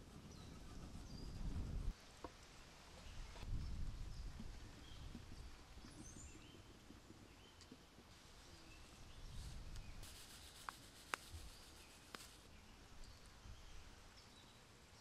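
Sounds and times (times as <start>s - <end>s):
faint birds chirping: 0.0s - 15.0s
grated cheese sprinkled into bowl: 10.0s - 12.5s.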